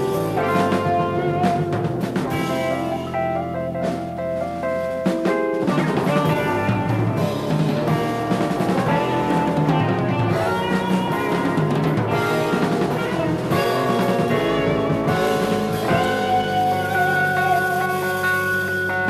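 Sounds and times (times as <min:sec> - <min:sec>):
jazz fusion band playing: 0:00.0 - 0:19.0.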